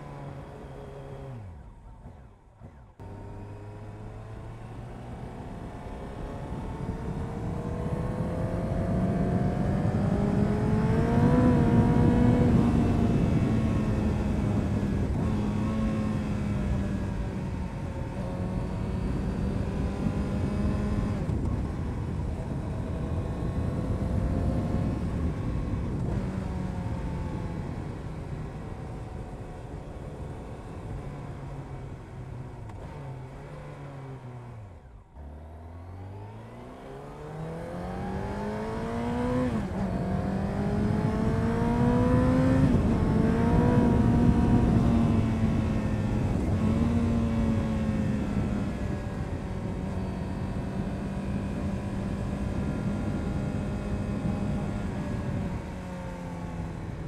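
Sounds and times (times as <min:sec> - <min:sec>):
motorcycle engine: 0:32.6 - 0:57.0.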